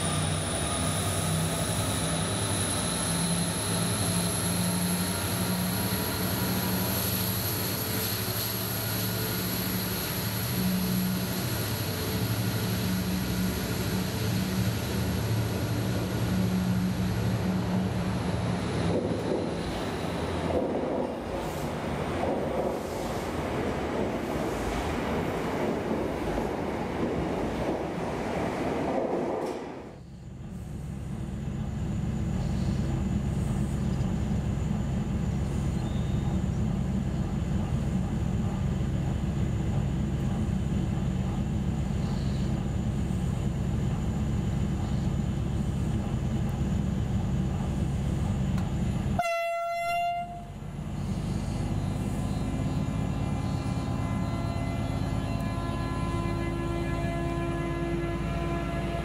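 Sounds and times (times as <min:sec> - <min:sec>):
diesel locomotive engine droning: 0:00.0 - 0:59.0
train horn blast: 0:49.2 - 0:50.6, 0:52.7 - 0:59.0.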